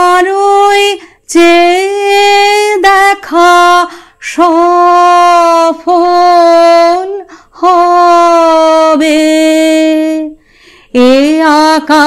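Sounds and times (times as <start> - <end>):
woman singing unaccompanied: 0.0 - 12.0
woman breathing: 1.0 - 1.3, 3.9 - 4.2, 7.2 - 7.6, 10.4 - 11.0.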